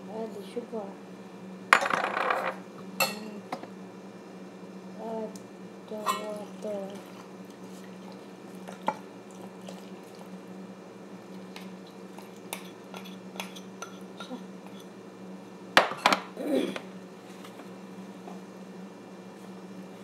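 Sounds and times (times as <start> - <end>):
bowls tapping and clinking: 1.8 - 3.3, 6.0 - 6.4
bowl scraping: 6.0 - 7.9.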